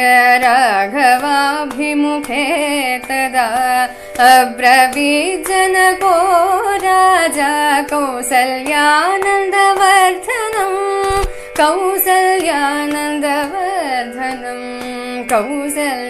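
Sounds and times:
woman singing: 0.0 - 16.0
low thump: 11.0 - 11.3.

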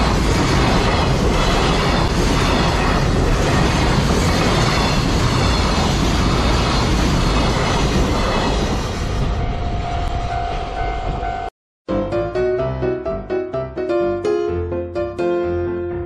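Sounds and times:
freight train wheels rumbling on rail: 0.0 - 11.5.

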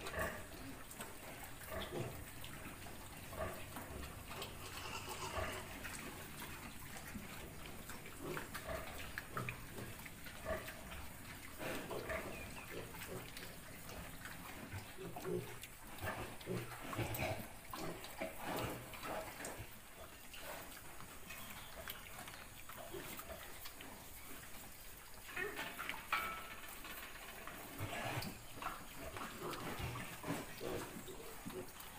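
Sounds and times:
sow and piglets grunting: 0.0 - 24.4, 27.6 - 31.9.

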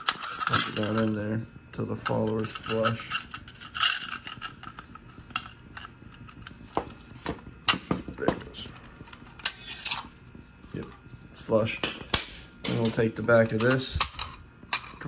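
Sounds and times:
metallic clicks and scrapes: 0.0 - 1.2, 2.1 - 6.6, 8.6 - 10.1.

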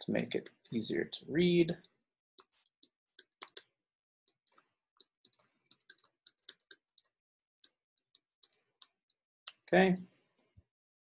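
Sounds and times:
stylus tapping on tablet screen: 2.4 - 9.6.

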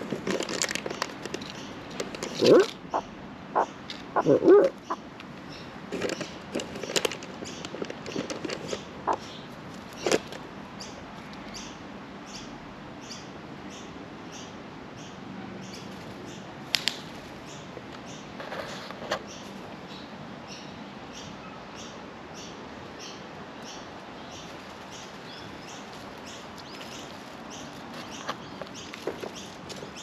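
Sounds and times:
magpie gliding calls: 2.4 - 5.0.

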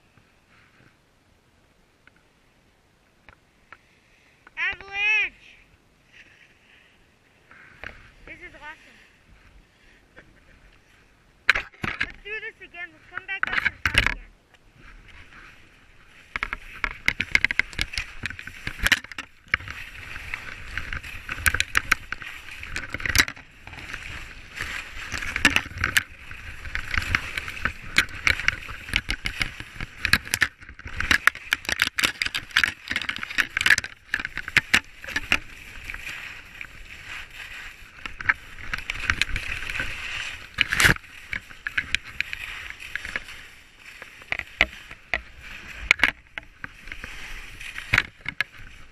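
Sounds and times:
skis scraping over snow: 6.0 - 11.1, 14.7 - 48.9
sharp clicks and knocks: 11.5 - 12.2, 13.1 - 14.6, 16.3 - 36.2, 38.0 - 48.8.

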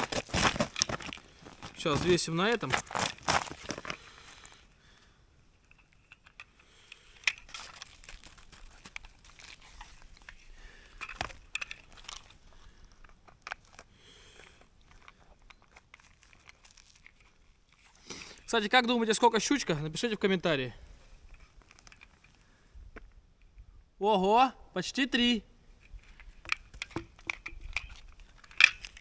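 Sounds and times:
handling clicks and knocks: 11.0 - 12.4, 25.8 - 29.0.

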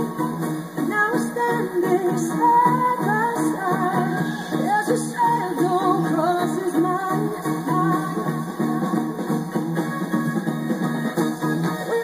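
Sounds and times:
woman singing into a microphone: 0.0 - 9.4, 11.8 - 12.0
drums: 0.0 - 12.0
electric guitar: 0.0 - 12.0
keyboard: 0.0 - 12.0.

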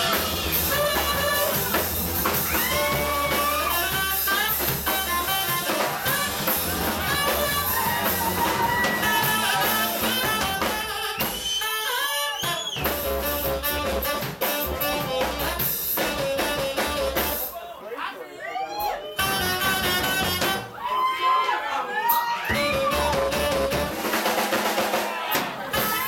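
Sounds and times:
upright bass: 0.0 - 11.2, 12.8 - 17.5, 19.2 - 20.7, 22.5 - 24.1
saxophone melody: 0.0 - 17.5, 19.1 - 20.8, 22.5 - 24.2
drum kit: 0.0 - 17.6, 19.2 - 20.9, 22.0 - 26.0.

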